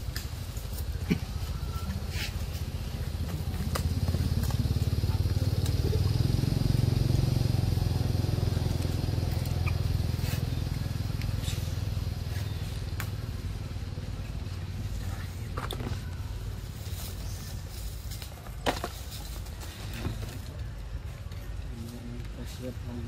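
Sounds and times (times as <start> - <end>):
vehicle engine running: 0.0 - 18.0.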